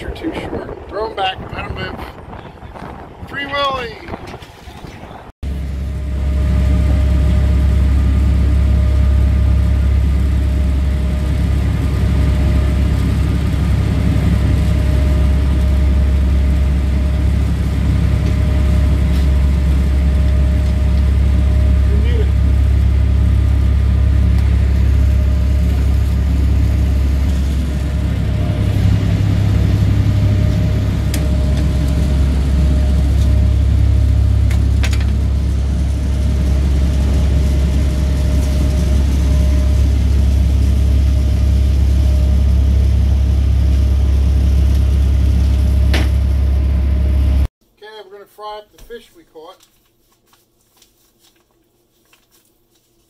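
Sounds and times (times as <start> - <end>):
boat engine droning: 5.4 - 47.5.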